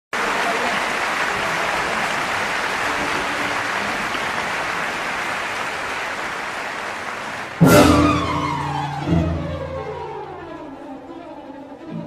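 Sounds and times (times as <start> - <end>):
large crowd applauding: 0.1 - 9.0.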